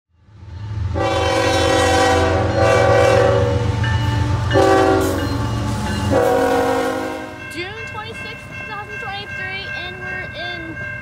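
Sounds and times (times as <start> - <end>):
locomotive horn chord: 0.9 - 8.9.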